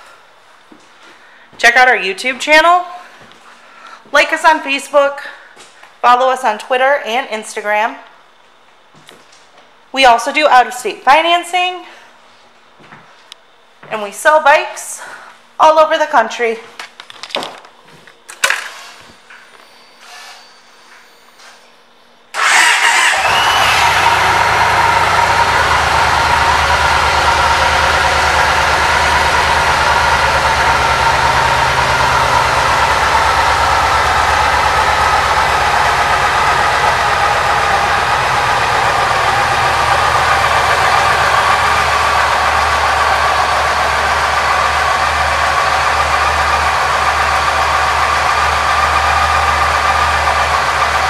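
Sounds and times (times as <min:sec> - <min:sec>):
motorcycle engine starting and idling: 0:22.3 - 0:51.0.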